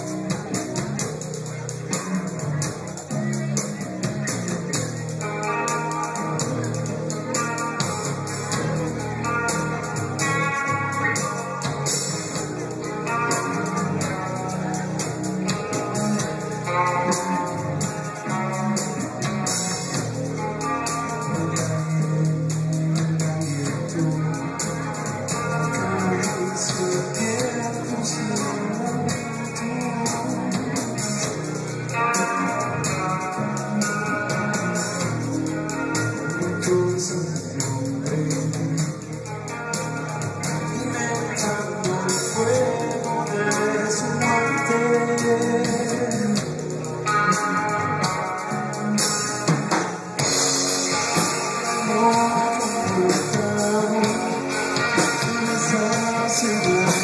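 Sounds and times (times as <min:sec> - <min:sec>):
drums with steady cymbals: 0:00.0 - 0:57.0
electric guitar lines: 0:00.0 - 0:57.0
heavy bass: 0:00.0 - 0:57.0.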